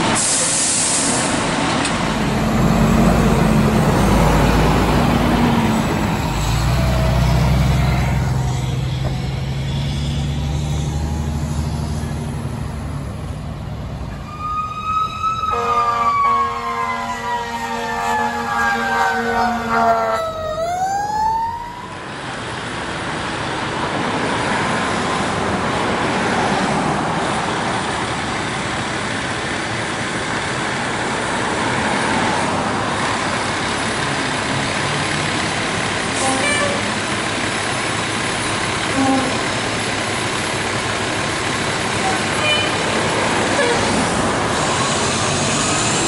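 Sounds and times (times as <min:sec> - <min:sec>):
fire truck engine rumble: 0:00.0 - 0:46.0
fire engine siren wailing: 0:01.9 - 0:13.2, 0:14.1 - 0:22.2.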